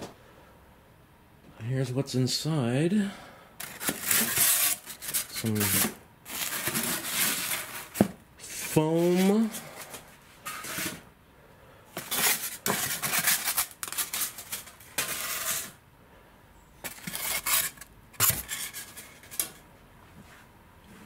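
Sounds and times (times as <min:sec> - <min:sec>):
foam sheets scraping: 0:03.6 - 0:11.0, 0:12.0 - 0:15.8, 0:16.8 - 0:19.6.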